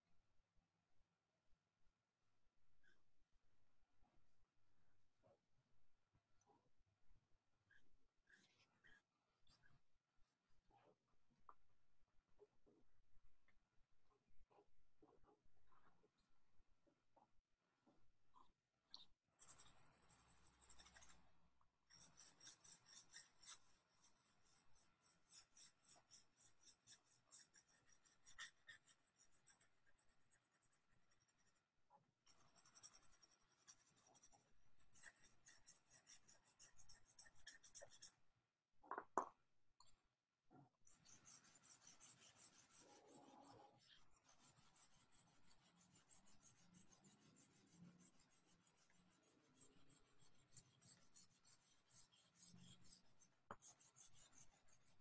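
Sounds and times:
drawing stick scratching on paper: 19.4s - 21.3s, 21.9s - 38.2s, 40.9s - 55.0s.

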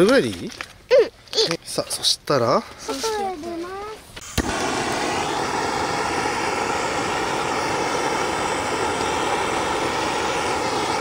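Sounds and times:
gas torch ignition click: 4.2s - 11.0s
torch flame hissing: 4.2s - 11.0s.

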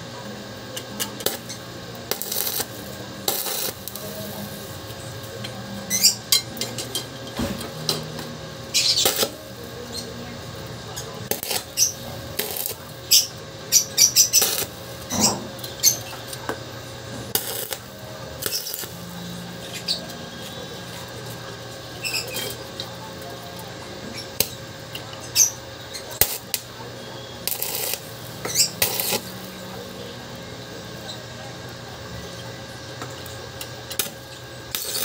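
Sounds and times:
welding arc crackling: 0.4s - 35.0s
welding rod clicks: 2.1s - 4.0s, 9.0s - 9.4s, 17.4s - 17.8s, 27.5s - 29.3s.

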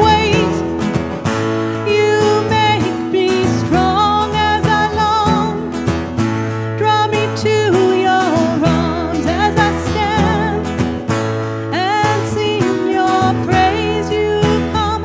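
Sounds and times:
person singing: 0.0s - 0.8s, 1.8s - 5.7s, 6.8s - 10.8s, 11.7s - 15.0s
acoustic guitar: 0.0s - 15.0s.

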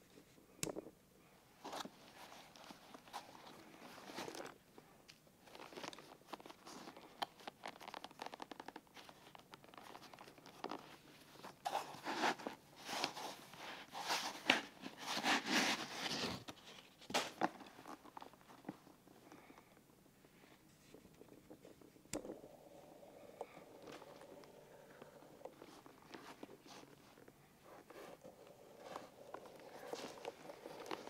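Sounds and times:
leather rustling and rubbing: 5.4s - 19.4s, 22.6s - 31.0s.

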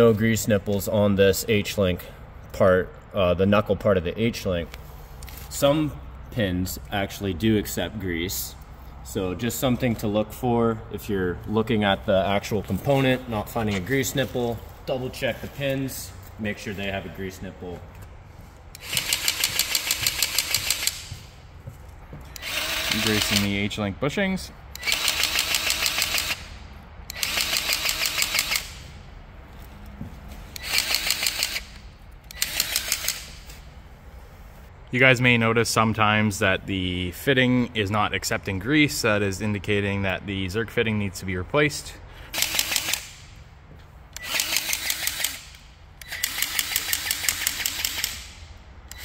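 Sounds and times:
grease gun clicking pump strokes: 18.7s - 21.1s.

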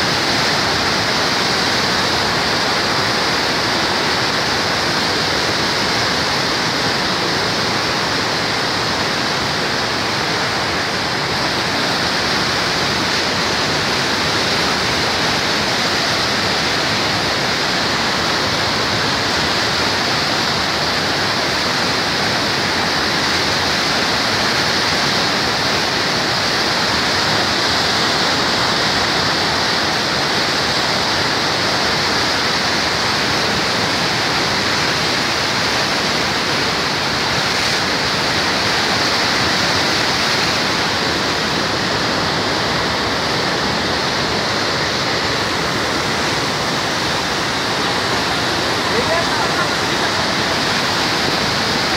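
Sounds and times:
turbulent water rushing: 0.0s - 51.9s.

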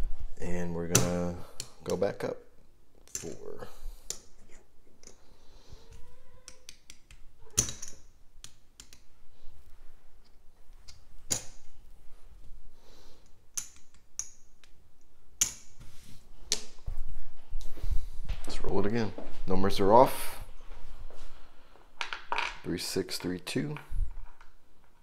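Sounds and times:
casino chips clicking together: 6.5s - 9.1s, 13.5s - 14.8s.

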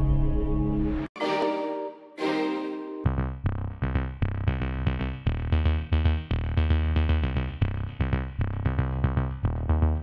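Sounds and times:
electronic music with heavy bass: 3.0s - 10.0s.

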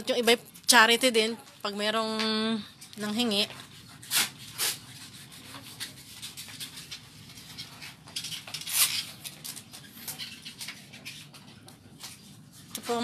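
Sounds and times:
rubbing and rustling: 2.9s - 13.0s.

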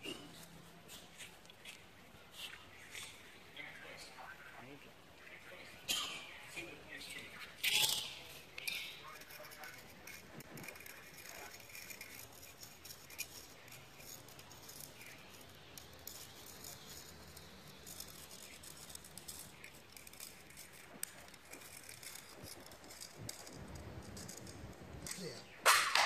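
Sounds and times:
stick scratching wet paint: 7.2s - 25.4s.

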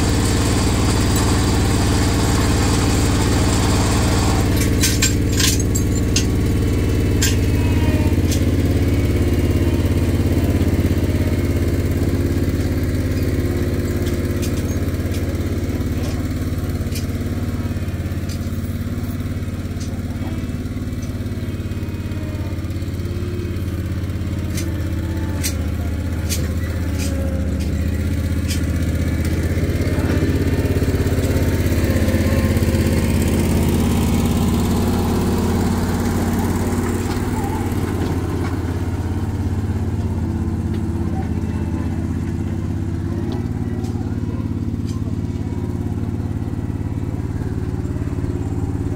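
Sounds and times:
engine running steadily: 0.0s - 48.9s.

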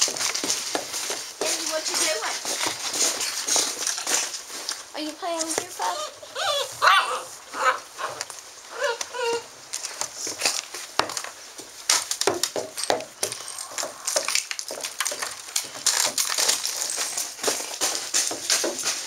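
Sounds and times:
footsteps and paws on wooden boards: 0.0s - 6.9s, 7.5s - 19.0s
puppy whimpers: 5.8s - 9.5s.

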